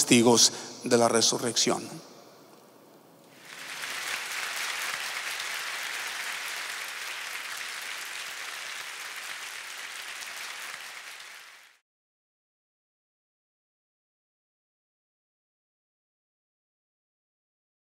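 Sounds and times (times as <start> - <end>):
audience applauding: 3.3 - 11.8.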